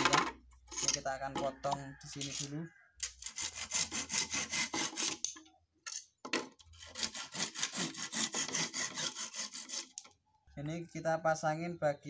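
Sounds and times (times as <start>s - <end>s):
hand saw cutting wood: 2.2s - 5.3s, 6.7s - 10.1s.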